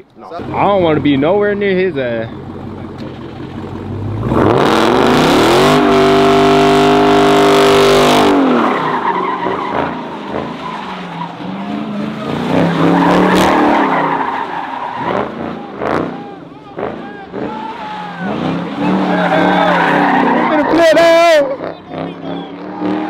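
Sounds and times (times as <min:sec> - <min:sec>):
car engine revving: 0:00.3 - 0:23.0
tyres squealing: 0:08.2 - 0:23.0.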